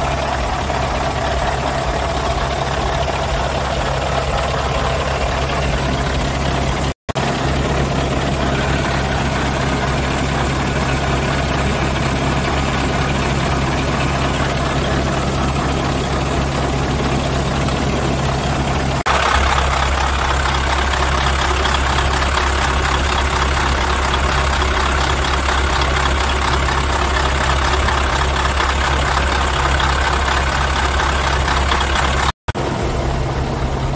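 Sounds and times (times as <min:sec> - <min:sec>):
diesel engine idling: 0:00.0 - 0:33.9.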